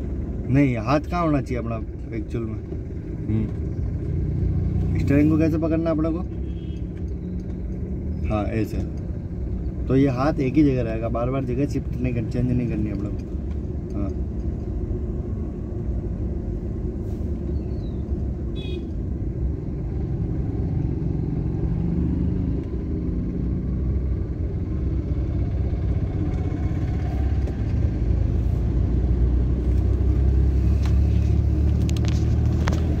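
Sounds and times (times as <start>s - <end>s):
car engine and road noise: 0.0s - 33.0s.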